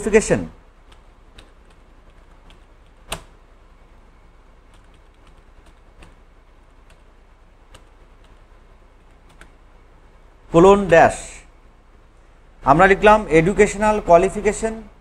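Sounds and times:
faint steady low hum: 0.0s - 15.0s
computer keyboard keys pressed: 0.9s - 3.3s, 4.7s - 6.2s, 9.2s - 9.5s.

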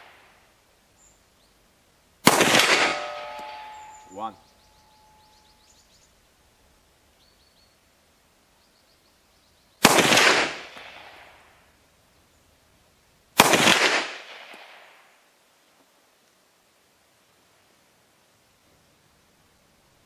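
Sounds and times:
pistol shots: 2.2s - 3.9s, 9.8s - 11.2s, 13.4s - 14.8s
rolling echo: 2.3s - 5.5s.

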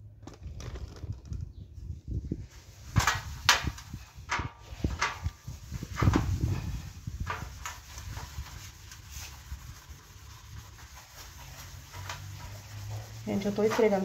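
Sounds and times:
steel wool scrubbing metal: 4.6s - 14.0s.

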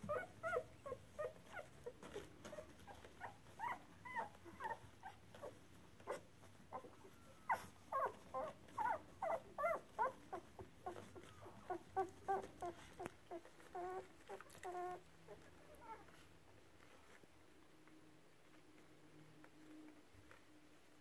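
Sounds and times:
puppies whimpering: 0.0s - 16.2s.

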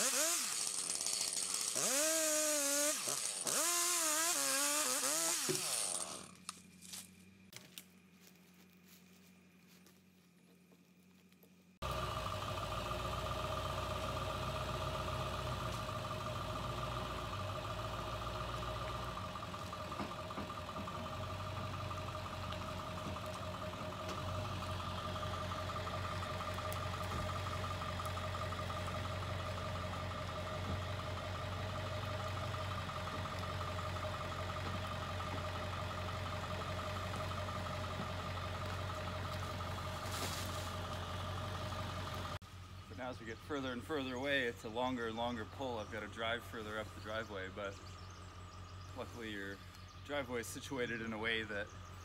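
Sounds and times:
constant pitched hum: 0.0s - 52.0s
truck engine idling: 11.8s - 52.0s.

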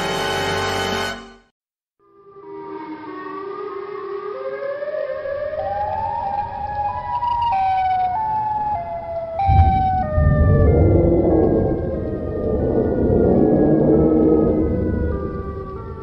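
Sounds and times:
siren-like tones climbing: 2.4s - 16.0s
deep boom: 9.4s - 15.8s
low rumble: 9.4s - 16.0s.

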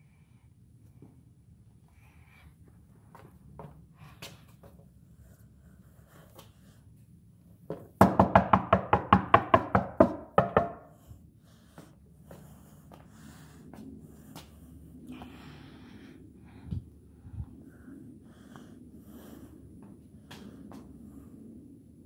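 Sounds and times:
hollow knocking on floor panel: 7.7s - 10.9s.

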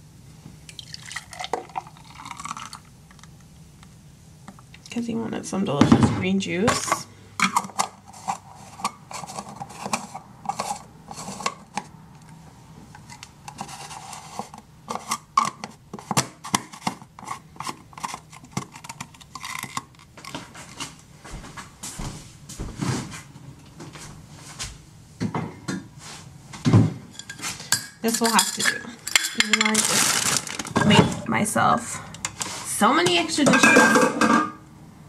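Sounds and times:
glassware and dishes clinking: 27.1s - 30.0s, 33.5s - 34.6s.

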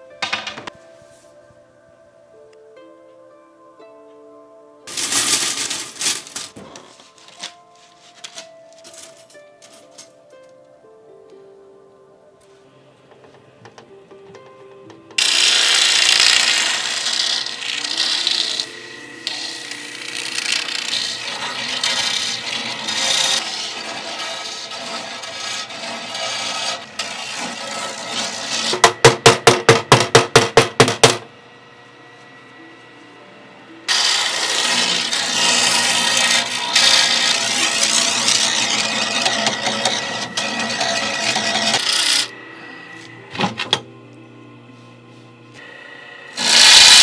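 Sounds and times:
metal rod scraping inside bamboo: 15.2s - 28.8s, 33.9s - 42.3s.

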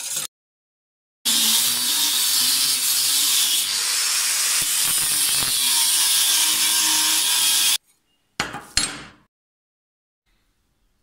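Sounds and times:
angle grinder cutting steel: 1.3s - 7.8s.

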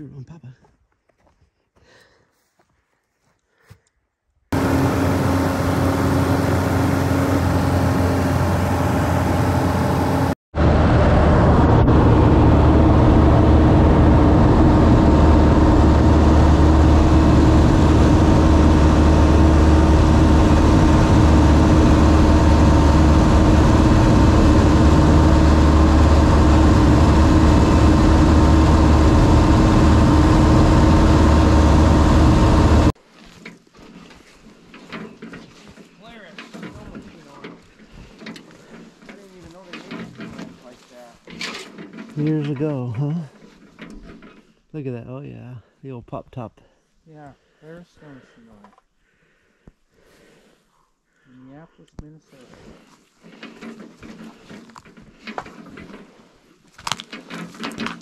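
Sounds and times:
plane engine and propeller drone: 4.6s - 32.9s.

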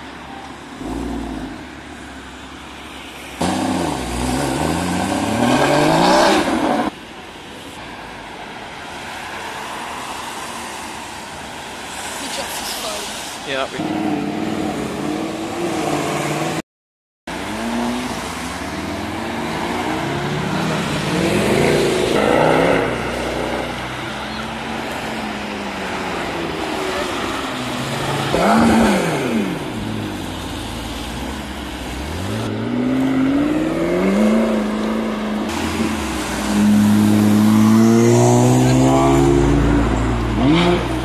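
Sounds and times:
cars passing on wet road: 0.0s - 16.6s, 17.3s - 41.0s
car engine revving: 3.4s - 6.9s, 17.3s - 41.0s.

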